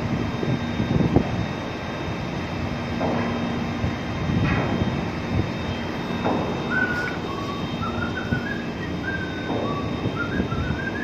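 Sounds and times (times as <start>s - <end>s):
low machinery hum: 0.0s - 11.0s
person whistling a tune: 6.7s - 11.0s.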